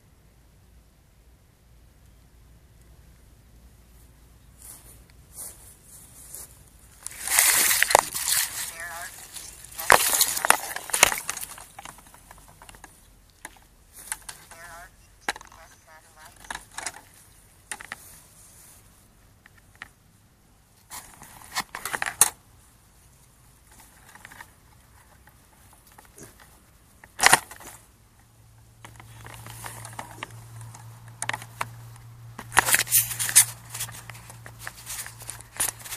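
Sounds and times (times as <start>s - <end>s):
low steady hum: 0.0s - 35.9s
rustling and crackling in grass: 2.8s - 35.9s.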